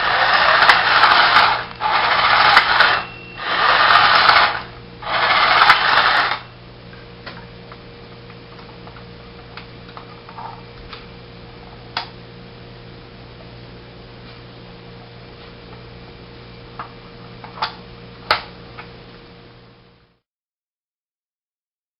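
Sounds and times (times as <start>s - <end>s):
toy motor and gears whirring: 0.0s - 6.5s
faint steady hum: 0.0s - 20.2s.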